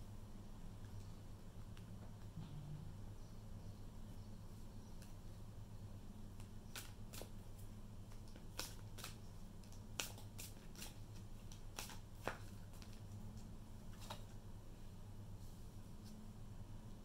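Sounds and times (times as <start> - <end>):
cards being shuffled: 6.4 - 14.4.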